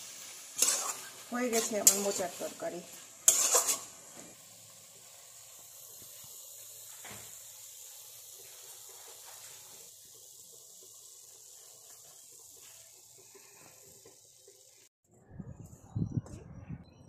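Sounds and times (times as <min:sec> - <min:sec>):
curry sizzling in a pan: 0:00.0 - 0:14.9.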